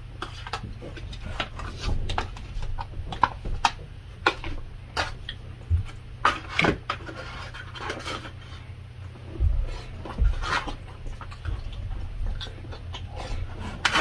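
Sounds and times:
cutlery scraping plastic tray: 6.2s - 8.6s, 13.0s - 14.0s
wet chewing: 9.3s - 14.0s.

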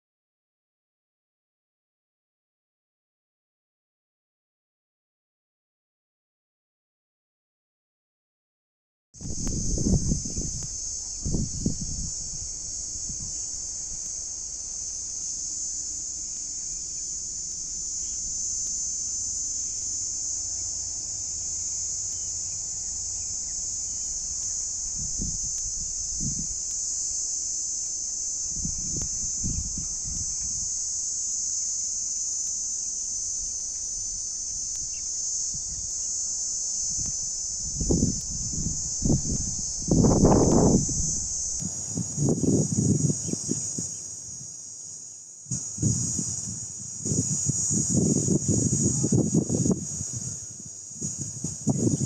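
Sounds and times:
insects shrilling: 9.2s - 52.0s.

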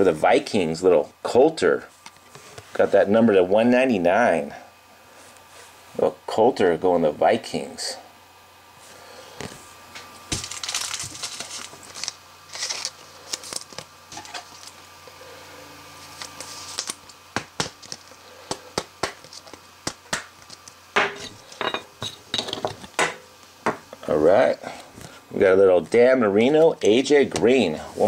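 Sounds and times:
plastic rustling: 10.2s - 14.9s.

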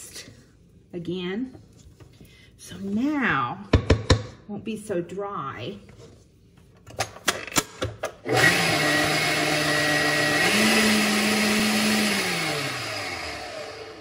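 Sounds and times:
stand mixer motor hum: 8.3s - 14.0s.

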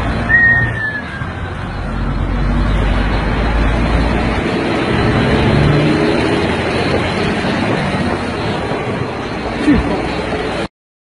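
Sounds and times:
vehicle road and engine noise: 0.0s - 10.7s
short high whistle-like tone: 0.3s - 1.4s.

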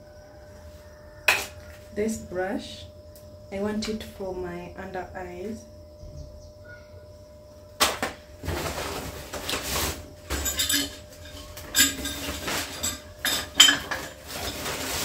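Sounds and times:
packaging rustling: 7.8s - 10.4s, 11.3s - 13.0s, 13.8s - 15.0s
sharp clinks and knocks: 10.3s - 14.5s.

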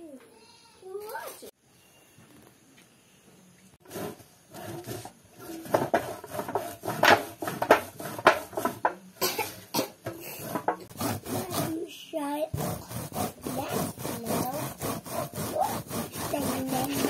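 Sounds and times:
corn rasping on metal grater: 3.8s - 8.9s, 10.3s - 17.0s.

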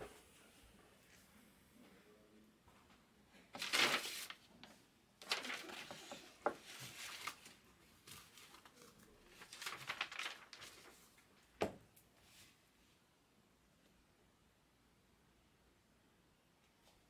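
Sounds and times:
packaging crinkling and rustling: 3.6s - 4.5s, 5.2s - 11.0s.

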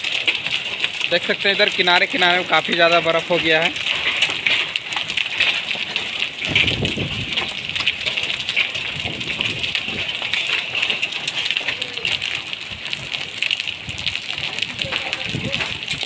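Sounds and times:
hailstones ticking on road: 0.0s - 16.0s
rain and hail falling: 0.0s - 16.0s.

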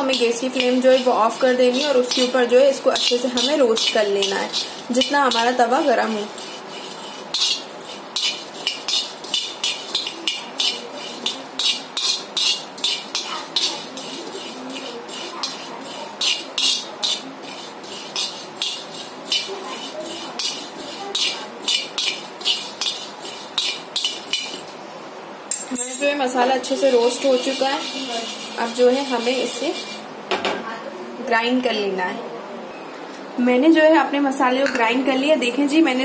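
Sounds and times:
steel spoon scraping seeds in a pan: 0.0s - 24.8s, 26.5s - 30.1s.

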